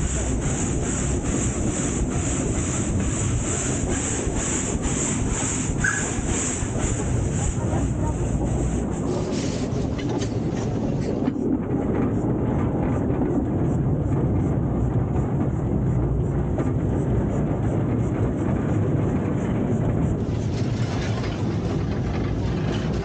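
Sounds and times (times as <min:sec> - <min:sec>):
train wheels rumbling on track: 0:00.0 - 0:23.0.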